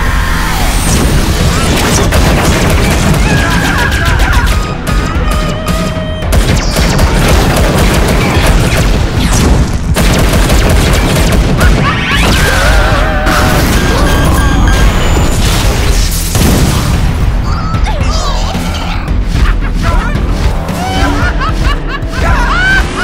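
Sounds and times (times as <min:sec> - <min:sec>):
cartoon action music: 0:00.0 - 0:23.0
booms and crashes: 0:00.6 - 0:05.3, 0:06.3 - 0:17.6.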